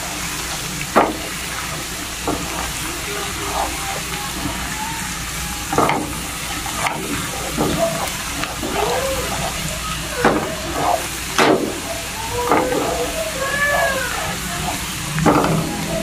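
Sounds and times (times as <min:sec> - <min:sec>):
coconut oil sizzling and bubbling: 0:00.0 - 0:16.0.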